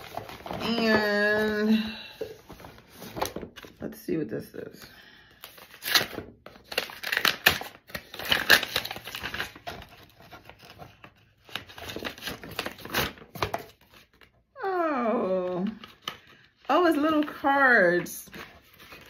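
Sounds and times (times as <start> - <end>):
paper envelope tearing: 5.5 - 14.2.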